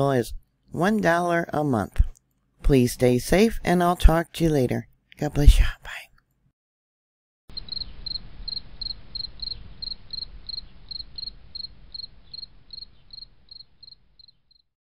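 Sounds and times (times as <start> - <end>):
cricket chirping: 7.5 - 14.7.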